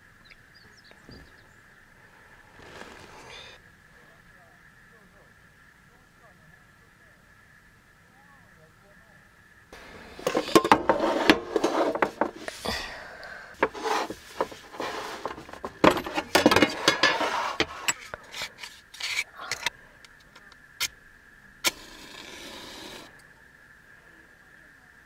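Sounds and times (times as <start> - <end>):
rustling: 2.0 - 3.6, 9.8 - 20.4
clicks of objects being handled: 13.6 - 20.9.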